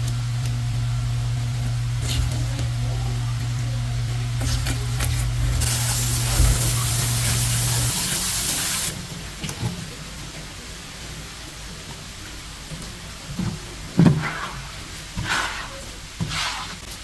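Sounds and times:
water spraying from a tap: 4.3 - 9.8.

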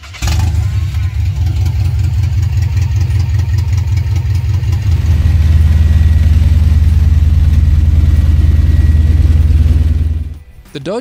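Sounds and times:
pickup truck engine idling: 0.0 - 10.6.

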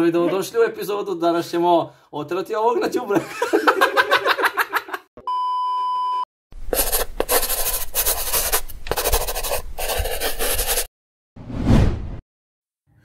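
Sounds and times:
test-tone beep: 5.2 - 6.2.

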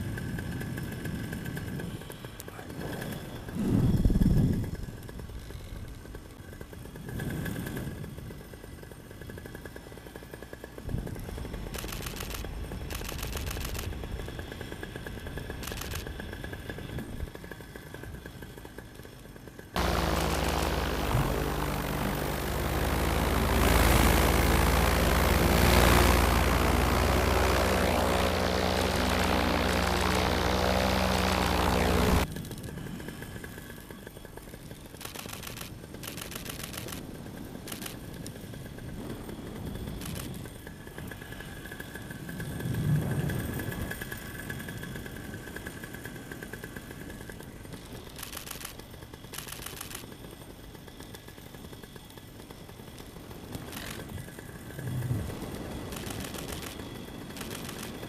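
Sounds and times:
paramotor engine and propeller: 0.0 - 58.0
camera shutter clicking rapidly: 11.7 - 14.0, 15.6 - 16.1, 35.0 - 37.0, 48.1 - 50.1, 53.7 - 54.0, 55.9 - 58.0.

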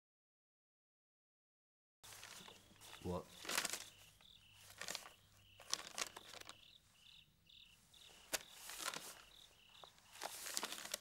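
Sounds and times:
paper rustling: 2.0 - 6.8, 8.0 - 11.0
crickets chirping: 2.1 - 11.0.

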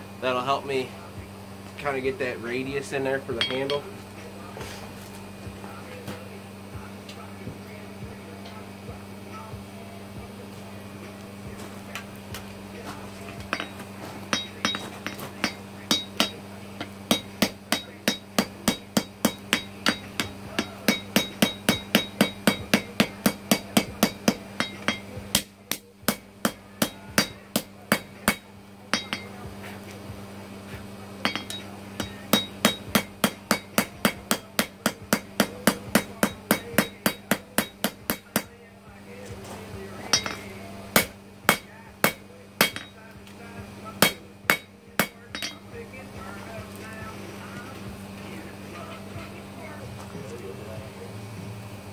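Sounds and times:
air blower hum: 0.0 - 51.9
hammer ringing on anvil: 3.3 - 3.9, 13.4 - 29.4, 31.2 - 38.5, 40.0 - 43.1, 44.0 - 45.7.

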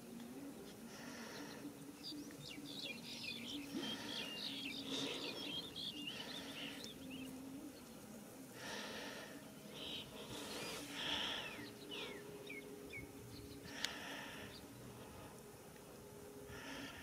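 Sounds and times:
faint low drone: 0.0 - 17.0
small birds chirping: 0.2 - 15.5.

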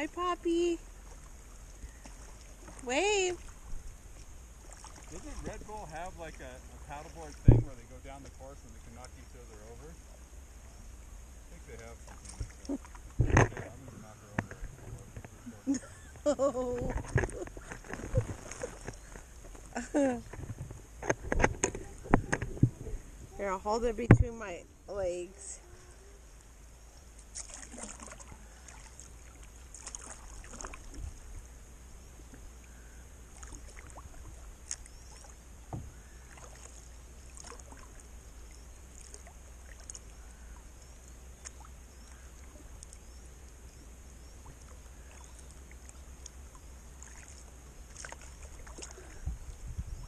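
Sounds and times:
paddle splashes and drips: 0.8 - 10.9, 11.5 - 13.8, 17.0 - 22.4, 26.4 - 49.7
knocks on kayak hull: 7.4 - 7.8
low rumble: 20.2 - 24.9.

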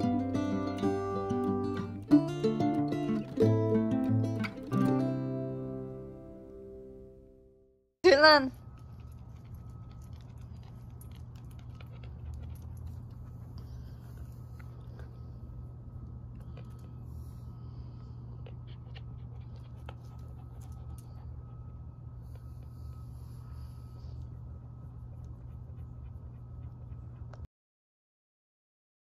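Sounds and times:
low hum: 0.0 - 27.5
dog panting: 9.0 - 15.6, 16.4 - 27.5.

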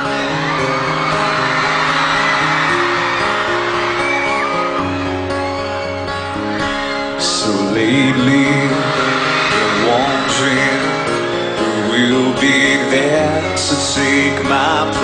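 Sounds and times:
acoustic guitar: 0.0 - 15.0
man singing: 7.1 - 15.0.

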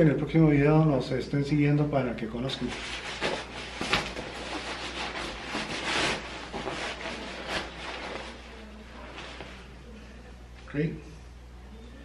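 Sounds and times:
nylon fabric rustling: 2.6 - 9.7.

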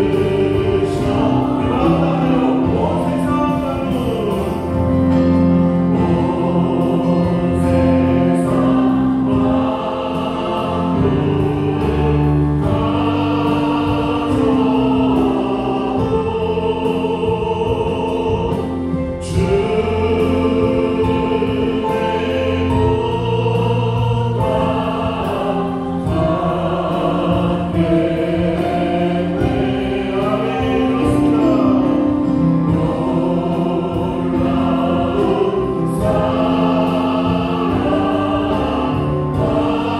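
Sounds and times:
choir singing: 0.0 - 39.9
drums: 0.0 - 39.9
keyboard: 0.0 - 39.9.

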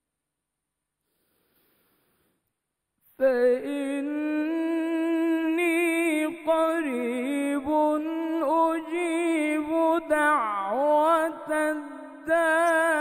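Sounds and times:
man chanting melodic recitation: 3.2 - 13.0.

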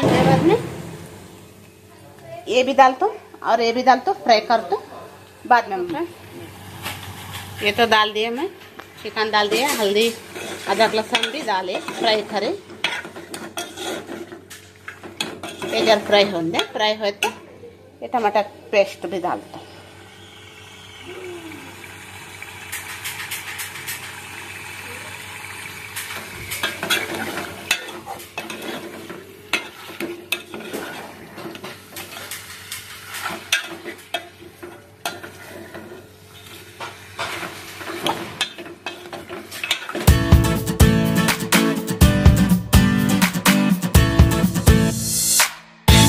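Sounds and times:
spoon scraping pan: 9.3 - 17.4, 26.1 - 40.1
chicken sizzling in oil: 19.8 - 28.5.

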